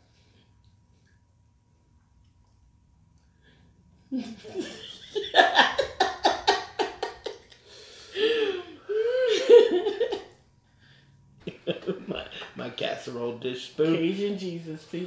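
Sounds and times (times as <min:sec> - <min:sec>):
woman laughing heartily: 0:04.1 - 0:10.3, 0:11.4 - 0:12.5.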